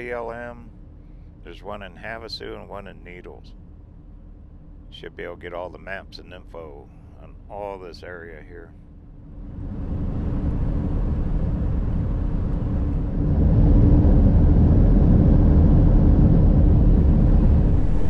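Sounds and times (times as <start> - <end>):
steady hum: 0.0 - 18.0
tyre and wind road noise: 9.4 - 18.0.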